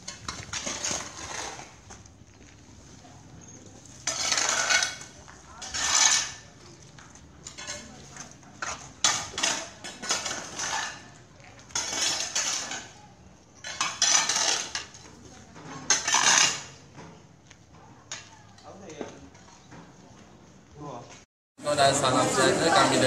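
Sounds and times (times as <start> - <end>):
metal tools scraping on concrete: 0.0 - 6.8, 7.4 - 17.3.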